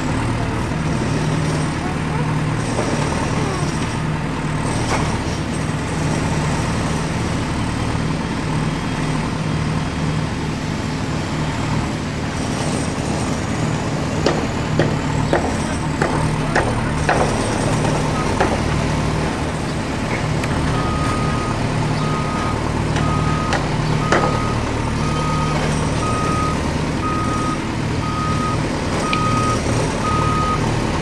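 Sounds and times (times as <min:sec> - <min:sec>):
heavy vehicle engine rumbling: 0:00.0 - 0:31.0.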